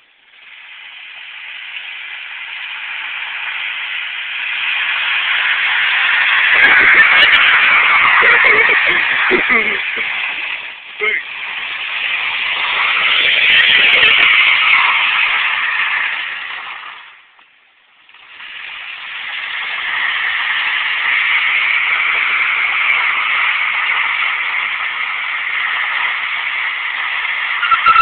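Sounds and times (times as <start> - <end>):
car tires squealing: 5.2 - 16.6, 27.6 - 28.0.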